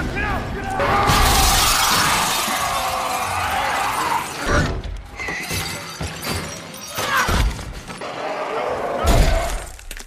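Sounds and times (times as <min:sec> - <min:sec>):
glass shattering: 0:01.1 - 0:03.3.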